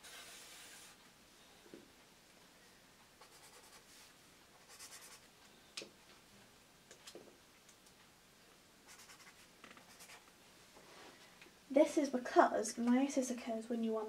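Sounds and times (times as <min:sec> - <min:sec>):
pens scratching on paper: 0:03.2 - 0:03.9, 0:04.6 - 0:05.2, 0:08.9 - 0:10.3.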